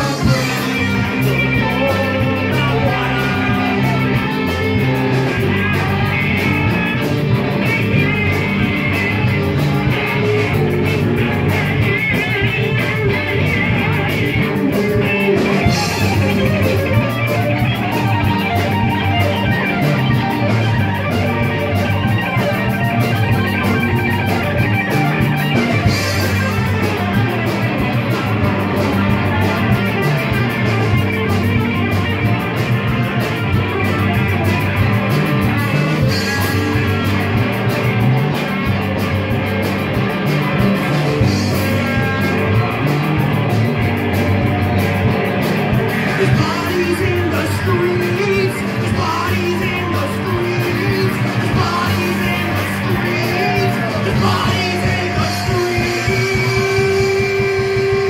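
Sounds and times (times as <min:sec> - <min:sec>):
live rock band playing: 0:00.0 - 0:58.0.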